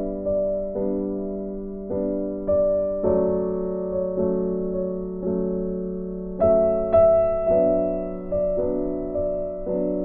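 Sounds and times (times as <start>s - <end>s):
soft piano chords: 0.0s - 10.0s.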